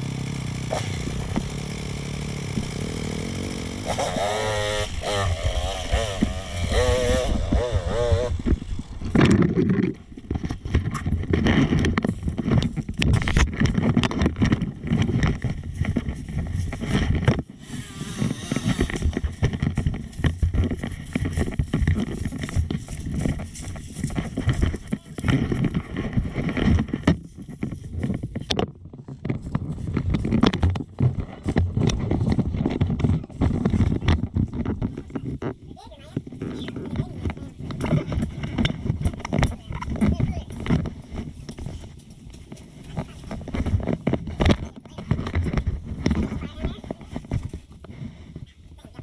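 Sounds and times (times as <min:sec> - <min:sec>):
dirt bike engine revving: 0:00.0 - 0:09.9, 0:16.7 - 0:23.1
bike knocking and clattering: 0:00.0 - 0:17.6, 0:18.2 - 0:49.0
wind noise on microphone: 0:04.4 - 0:49.0.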